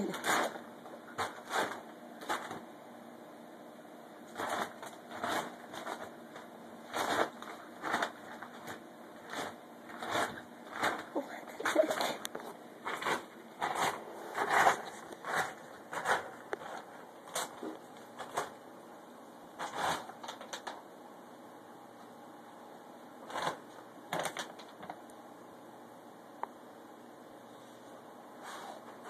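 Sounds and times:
food bags crinkling and rustling: 0:04.3 - 0:18.6, 0:19.6 - 0:20.8, 0:23.3 - 0:25.0.

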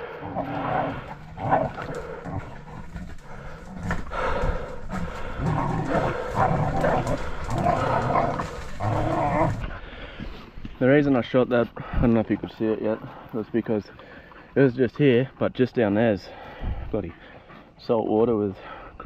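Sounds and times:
dogs barking: 0:00.5 - 0:09.6.

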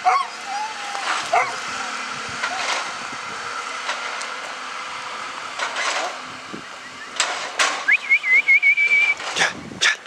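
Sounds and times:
faint mechanical hum: 0:00.0 - 0:10.0.

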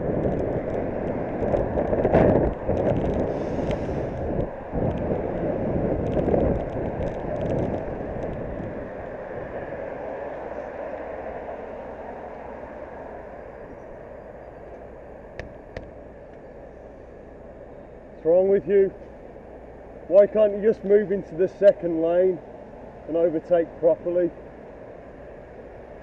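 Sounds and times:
wind rushing over microphone: 0:00.0 - 0:16.2
road and traffic noise: 0:00.0 - 0:26.0.

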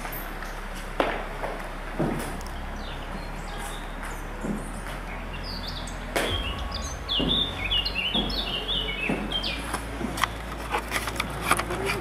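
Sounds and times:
songbird chirping: 0:02.4 - 0:10.6
footsteps: 0:06.1 - 0:12.0.

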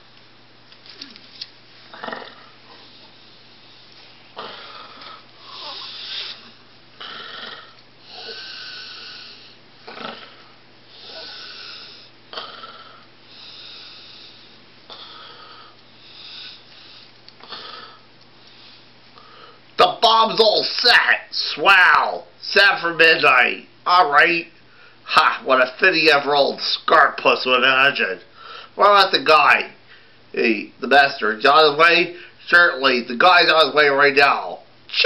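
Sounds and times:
person snoring: 0:04.4 - 0:16.6.

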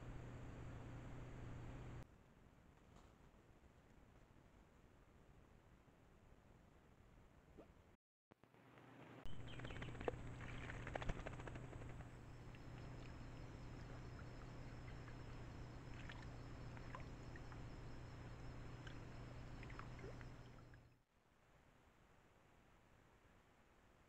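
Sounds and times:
electronic hum and hiss: 0:00.0 - 0:02.0, 0:08.9 - 0:21.0.

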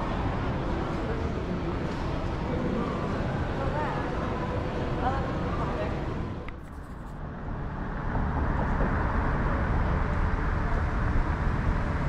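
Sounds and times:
indoor crowd murmur: 0:00.0 - 0:06.6
low rumble of street traffic: 0:00.0 - 0:12.0.

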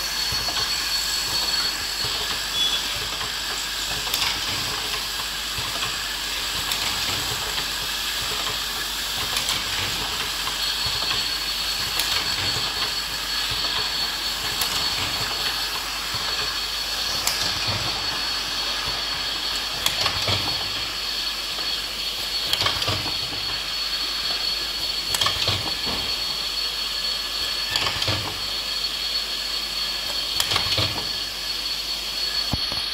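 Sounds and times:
filling machine hiss and whine: 0:00.0 - 0:32.9
pneumatic cylinder clicks: 0:00.3 - 0:08.6, 0:09.2 - 0:16.5, 0:22.4 - 0:23.4, 0:25.1 - 0:26.1, 0:27.7 - 0:28.5, 0:30.1 - 0:31.2.

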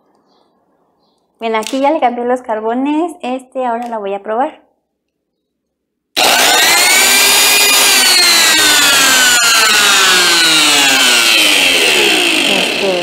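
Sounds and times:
angle grinder motor whine: 0:06.2 - 0:13.0.

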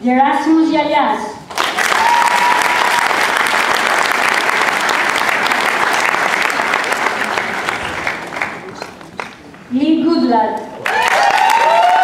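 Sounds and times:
audience applauding: 0:01.5 - 0:09.6, 0:10.8 - 0:12.0.

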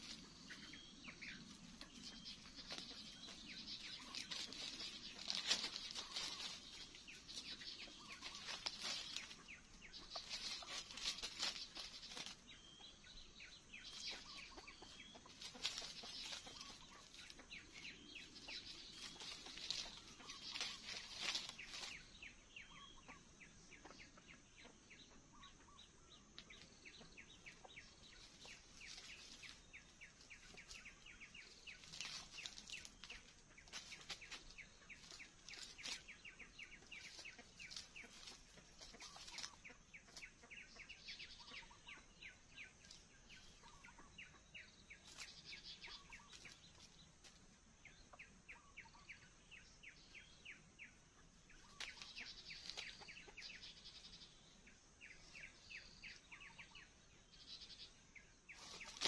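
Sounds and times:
chicken clucking: 0:00.0 - 0:47.4, 0:51.6 - 0:54.0
small birds chirping: 0:00.0 - 0:59.0.

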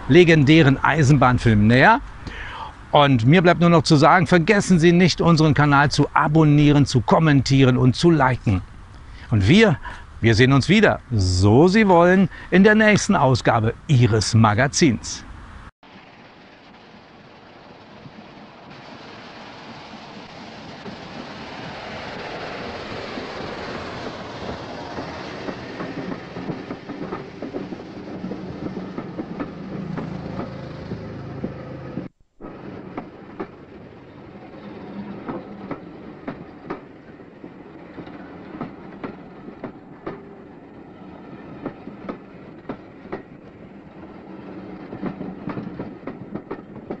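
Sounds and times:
train rumbling on track: 0:00.0 - 0:47.0
wheels clicking over rails: 0:19.6 - 0:47.0.

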